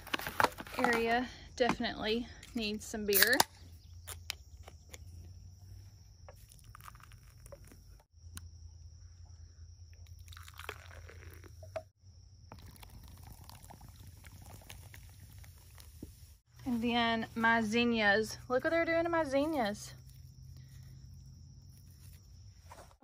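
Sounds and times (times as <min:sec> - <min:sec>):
beer pouring and fizzing: 0:06.4 - 0:08.0, 0:10.0 - 0:16.2.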